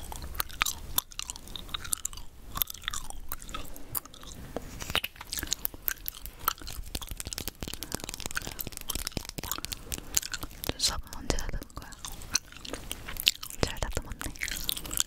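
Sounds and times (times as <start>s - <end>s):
gum chewing wet smacks: 0.0s - 15.0s.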